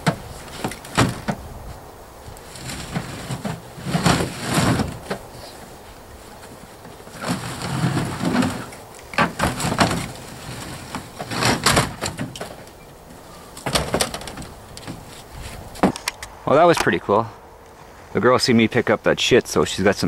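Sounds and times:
metal scraping and knocking on metal: 0:02.4 - 0:05.6, 0:06.8 - 0:12.8, 0:13.6 - 0:16.2.

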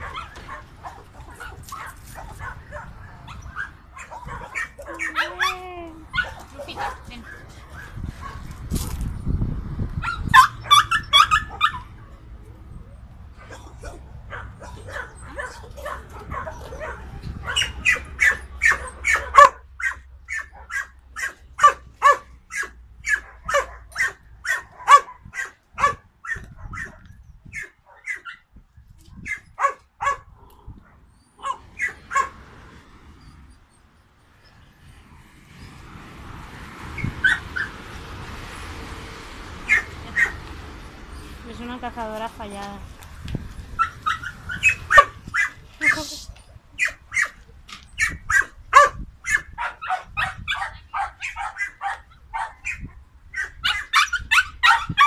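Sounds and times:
dog barking: 0:00.0 - 0:08.4, 0:13.4 - 0:27.0, 0:27.6 - 0:28.4, 0:29.2 - 0:30.3, 0:31.4 - 0:32.4, 0:39.7 - 0:40.4, 0:43.8 - 0:46.0, 0:46.8 - 0:47.4, 0:48.0 - 0:52.8, 0:53.4 - 0:55.0.

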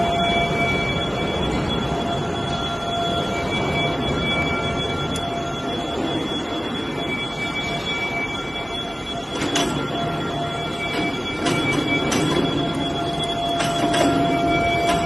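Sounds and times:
mechanical noise with whine: 0:00.0 - 0:15.0
sharp clicks and knocks: 0:10.9 - 0:12.6.

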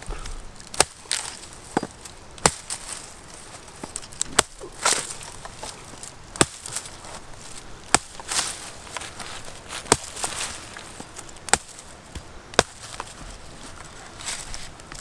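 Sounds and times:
knife chopping coconut husk: 0:00.1 - 0:02.8, 0:03.8 - 0:05.8, 0:09.8 - 0:10.4, 0:11.5 - 0:13.1.

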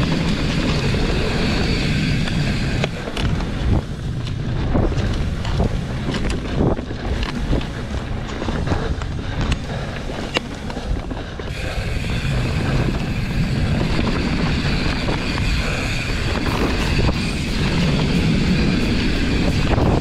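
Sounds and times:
bike clicks and rattles: 0:00.0 - 0:20.0
bike tyres rumbling on trail: 0:00.0 - 0:20.0
wind buffeting microphone: 0:00.0 - 0:20.0
steady hiss: 0:11.5 - 0:20.0.

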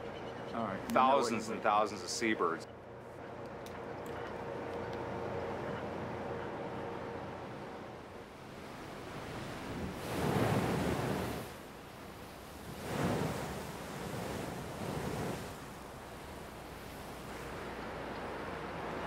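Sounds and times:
ocean surf breaking against cliff: 0:08.3 - 0:19.0.

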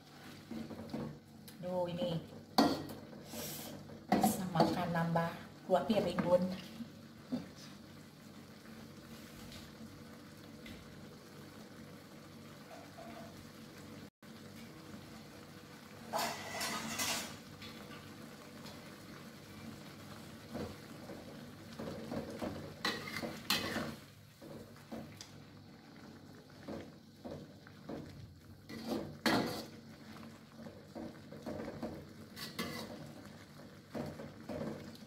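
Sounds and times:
faint broth bubbling: 0:00.0 - 0:35.0
metal spatula scraping a wok: 0:16.1 - 0:17.4, 0:22.8 - 0:24.0, 0:28.7 - 0:29.9, 0:32.3 - 0:33.1.

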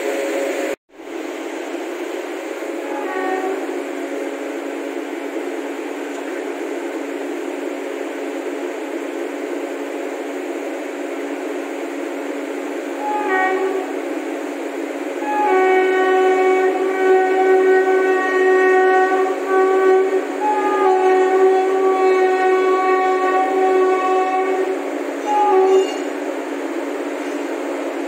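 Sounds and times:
train running noise: 0:00.0 - 0:28.0
train horn blasts: 0:02.7 - 0:04.2, 0:12.8 - 0:26.2.

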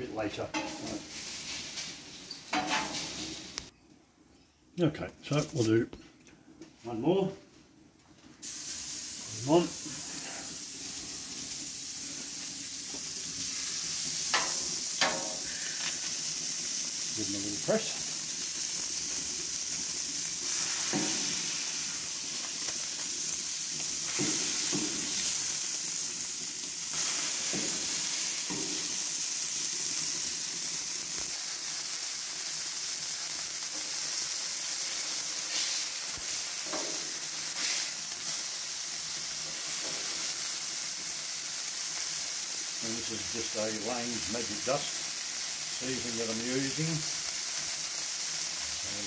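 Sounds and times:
patties sizzling on a griddle: 0:00.0 - 0:03.7, 0:08.4 - 0:49.0
metal spatula scraping griddle: 0:00.6 - 0:03.4.

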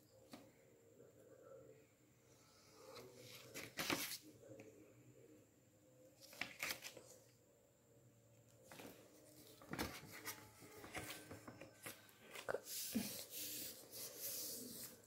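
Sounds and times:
paper rustling: 0:02.9 - 0:04.2, 0:06.2 - 0:07.1, 0:08.7 - 0:15.0.

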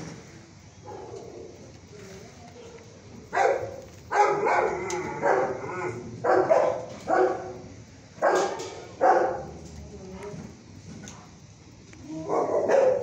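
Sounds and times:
dog barking: 0:03.3 - 0:07.6, 0:08.2 - 0:09.5, 0:12.2 - 0:13.0.

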